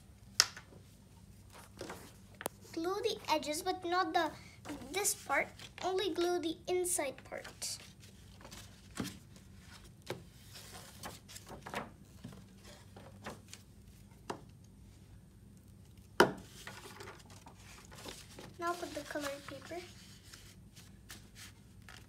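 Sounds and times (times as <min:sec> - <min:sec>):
paper handled and pressed flat: 0:07.4 - 0:13.7, 0:15.9 - 0:22.0.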